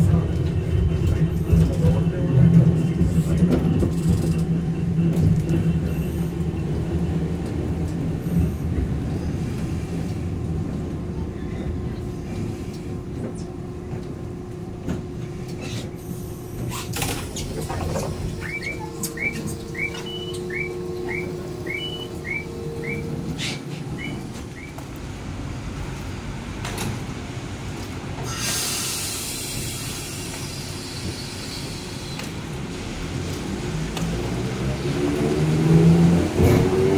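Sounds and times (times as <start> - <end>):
tram rumbling: 0.0 - 36.9
electronic chirps: 18.4 - 23.2.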